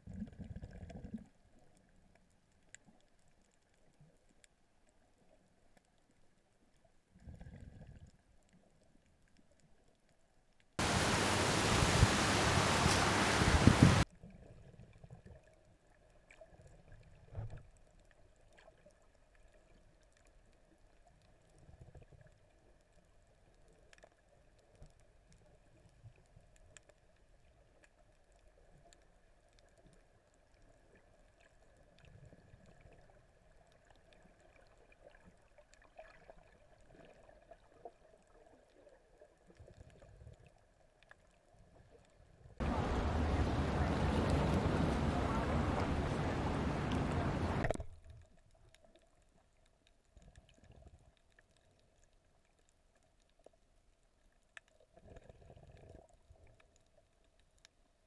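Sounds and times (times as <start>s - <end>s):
faint steady hum: 10.8s - 14.0s, 42.6s - 48.0s
loud hiss: 10.8s - 14.0s.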